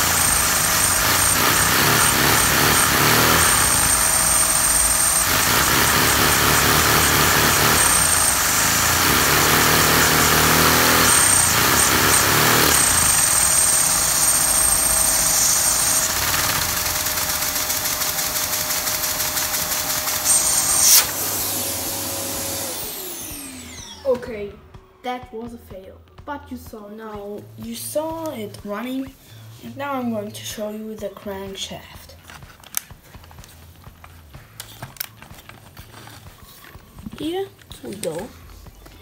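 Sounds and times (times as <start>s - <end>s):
vacuum cleaner whine: 0.0s - 25.0s.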